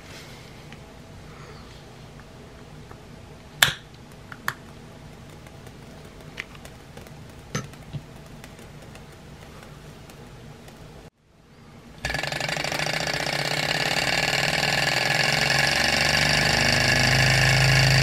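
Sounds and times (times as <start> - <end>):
faint steady hum: 0.0 - 18.0
faint clicks and taps: 4.0 - 10.9.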